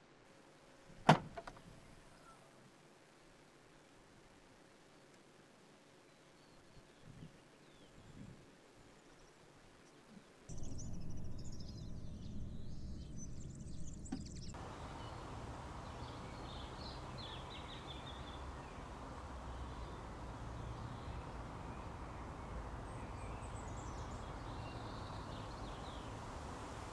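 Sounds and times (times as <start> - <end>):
background hiss: 0.0 - 26.9
birds chirping: 10.5 - 26.9
steady low rumble: 10.5 - 26.9.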